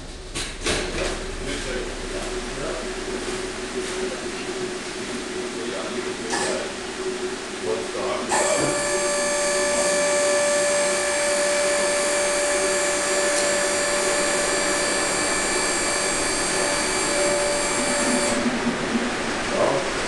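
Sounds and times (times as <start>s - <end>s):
rushing noise: 0.0s - 6.1s
machine motor whine: 0.0s - 20.0s.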